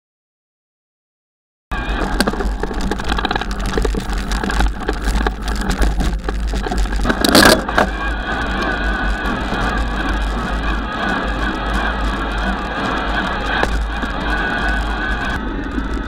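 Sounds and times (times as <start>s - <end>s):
wind rumble on microphone: 1.7s - 16.0s
bike rattles and knocks: 1.8s - 14.8s
bike jolt: 1.9s - 9.3s.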